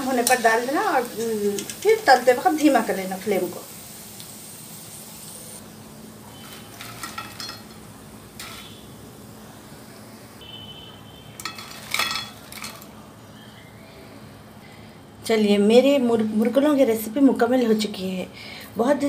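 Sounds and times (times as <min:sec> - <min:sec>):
hot oil sizzling: 0:00.0 - 0:13.4
metal skimmer clinking and scraping: 0:06.4 - 0:07.8.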